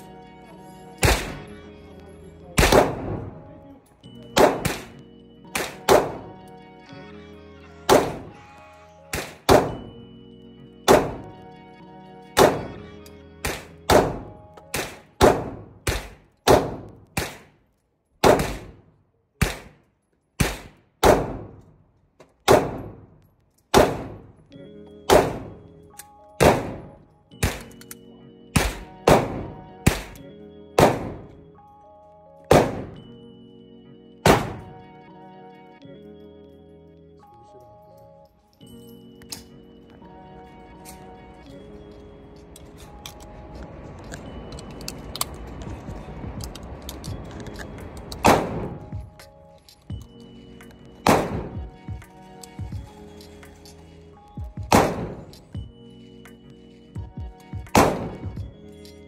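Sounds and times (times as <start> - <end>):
pistol shots echoing indoors: 18.2 - 18.8, 23.7 - 24.2, 25.1 - 25.6, 26.4 - 27.9, 28.6 - 30.2, 30.8 - 31.4, 32.5 - 33.0, 34.3 - 34.7, 54.7 - 55.3, 57.8 - 58.2.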